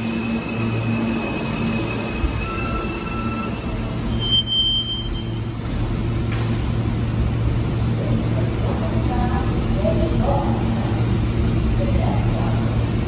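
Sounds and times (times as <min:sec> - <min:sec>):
brake squeal: 0:00.0 - 0:05.4
train steady high tones: 0:00.0 - 0:06.1
low hum of standing train: 0:00.0 - 0:13.0.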